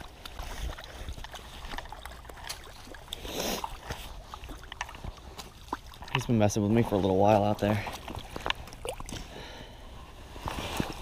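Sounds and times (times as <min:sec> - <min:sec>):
fish splashing in water: 0:00.0 - 0:06.4.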